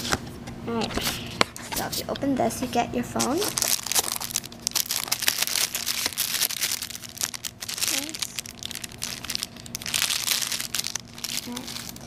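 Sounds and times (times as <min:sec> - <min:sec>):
plastic bag crinkling: 0:03.2 - 0:12.0.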